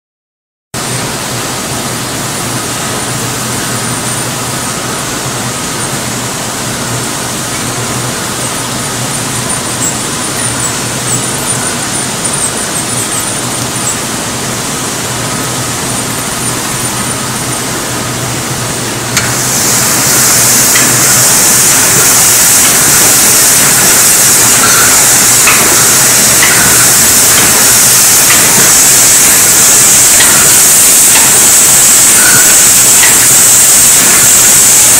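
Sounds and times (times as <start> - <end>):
bottling machine running: 0.8 - 34.9.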